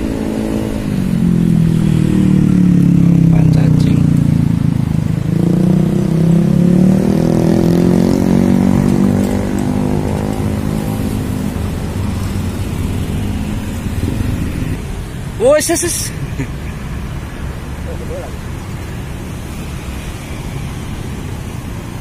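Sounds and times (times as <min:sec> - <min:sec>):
vehicle engine running: 0:00.0 - 0:05.8.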